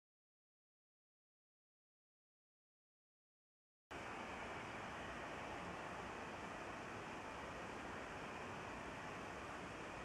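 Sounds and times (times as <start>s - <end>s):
distant jet engines rushing: 3.9s - 10.0s.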